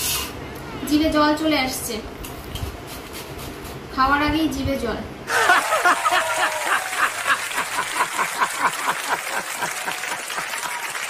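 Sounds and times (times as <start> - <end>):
man laughing heartily: 5.3 - 10.7.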